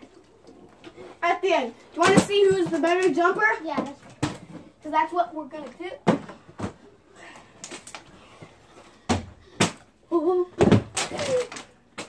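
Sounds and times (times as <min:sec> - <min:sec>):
plastic bottles thudding on landing: 0:02.0 - 0:04.7, 0:06.0 - 0:06.8, 0:10.6 - 0:12.0.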